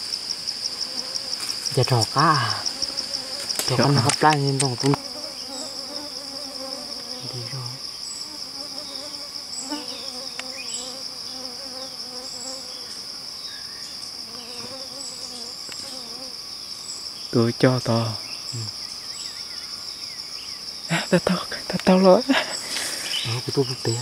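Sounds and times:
high-pitched insect drone: 0:00.0 - 0:24.0.

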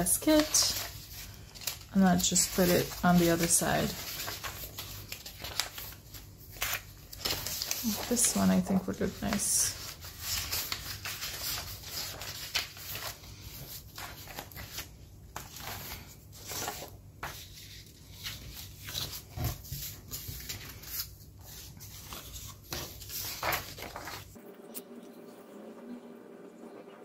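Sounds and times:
paper sheets rustling: 0:00.0 - 0:24.4.

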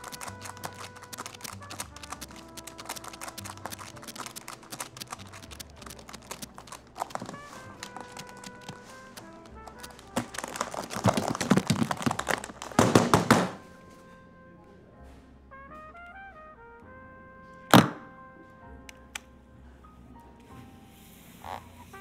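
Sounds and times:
rustling and knocking: 0:00.0 - 0:13.6
quiet background music: 0:00.0 - 0:22.0
briefcase thunk on counter: 0:12.7 - 0:13.6, 0:17.7 - 0:18.0.

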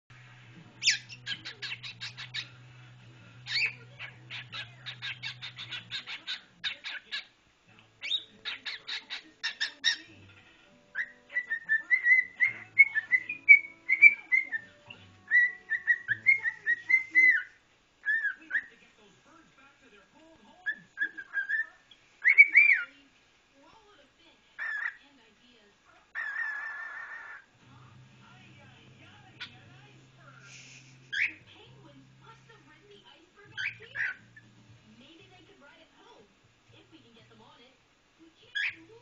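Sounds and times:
cockatiel chirping: 0:00.8 - 0:02.6, 0:03.4 - 0:07.3, 0:08.0 - 0:18.8, 0:20.7 - 0:22.9, 0:24.6 - 0:25.0, 0:26.2 - 0:27.5, 0:30.4 - 0:31.5, 0:33.5 - 0:34.5, 0:38.5 - 0:38.9
cockatiel warbling whistles: 0:11.0 - 0:18.4.

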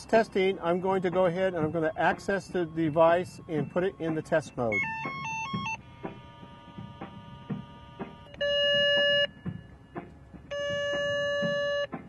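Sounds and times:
steady buzzy tone: 0:04.7 - 0:12.0
touch-tones: 0:04.7 - 0:12.0.

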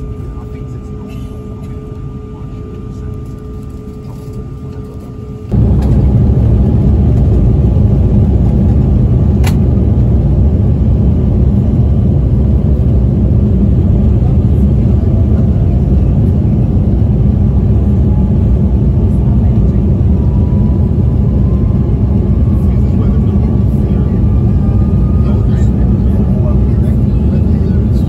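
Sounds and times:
jet engine rumble: 0:00.0 - 0:28.0
faint rising whine: 0:02.9 - 0:28.0.

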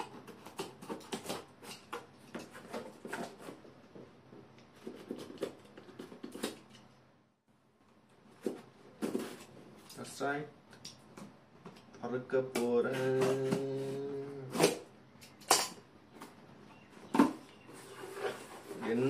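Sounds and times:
knife cutting cardboard: 0:00.0 - 0:03.7.

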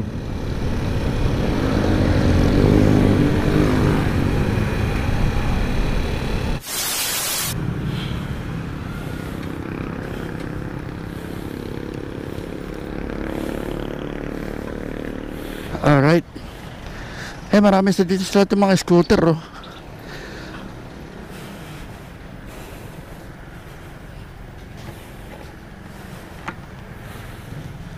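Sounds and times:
motorcycle engine running: 0:00.0 - 0:06.6, 0:07.6 - 0:17.2
static hiss burst: 0:06.5 - 0:07.6.

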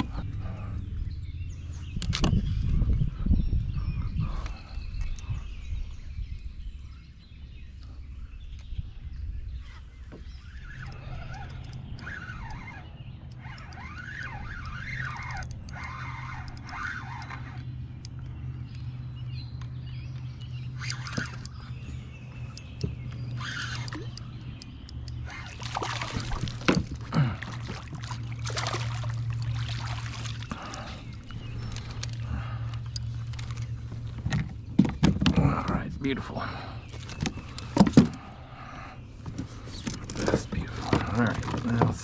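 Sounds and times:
steady low hum: 0:00.0 - 0:42.0
fish splashing at water surface: 0:25.5 - 0:30.8.

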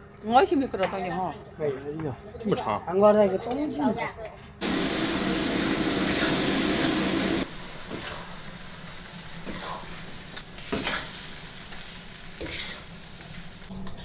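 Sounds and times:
sauce sizzling in a wok: 0:04.6 - 0:13.7.

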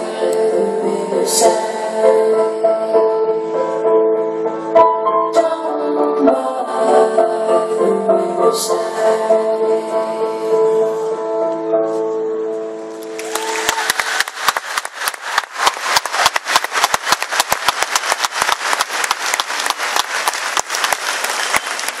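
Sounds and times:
crowd applauding: 0:13.0 - 0:22.0.

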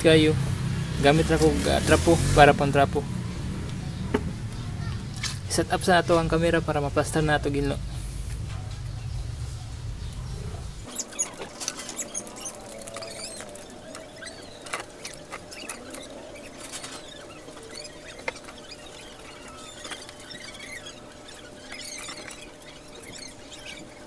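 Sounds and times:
cloth squeaking on wet bodywork: 0:10.9 - 0:24.0.

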